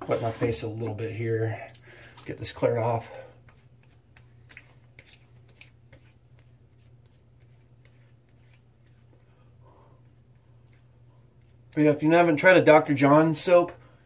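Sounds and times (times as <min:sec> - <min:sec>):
low steady hum: 0:00.0 - 0:14.0
fingertips rubbing wet skin: 0:03.4 - 0:09.4.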